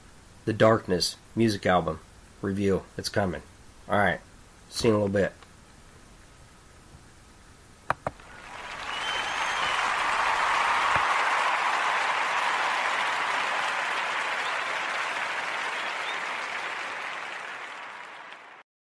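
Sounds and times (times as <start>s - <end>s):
crowd applause: 8.2s - 18.6s.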